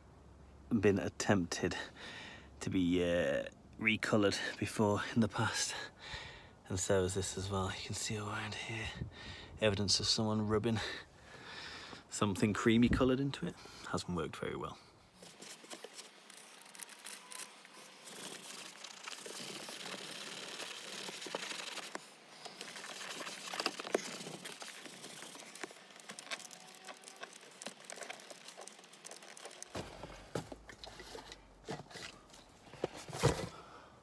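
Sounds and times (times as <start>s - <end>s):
crinkling handling noise: 15.1s - 33.7s
rummaging in cardboard box: 21.8s - 33.6s.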